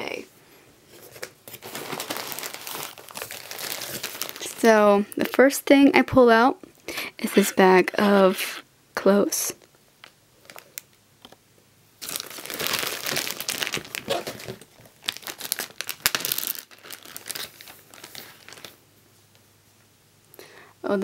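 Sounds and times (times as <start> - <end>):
plastic bag crinkling: 1.0 - 5.4, 10.0 - 11.0, 12.0 - 18.8.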